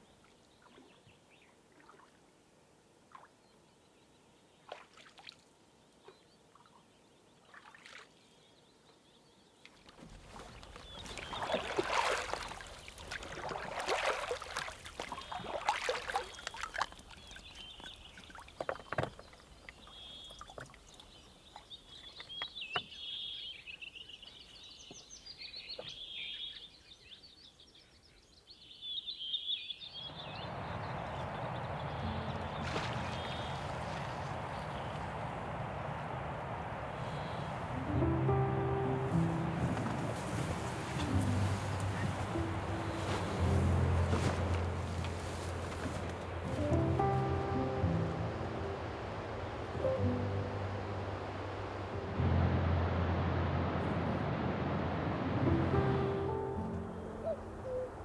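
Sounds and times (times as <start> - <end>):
birds chirping: 8.2 - 54.0, 54.8 - 58.0
water splashing into bottle: 10.1 - 17.4
faint drips: 10.3 - 22.4.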